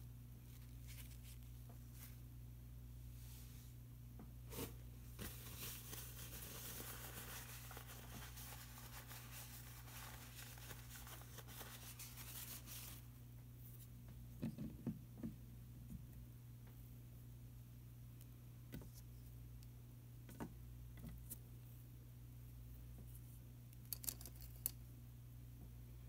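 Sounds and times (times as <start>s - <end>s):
paintbrush scrubbing on paper: 5.5s - 13.1s.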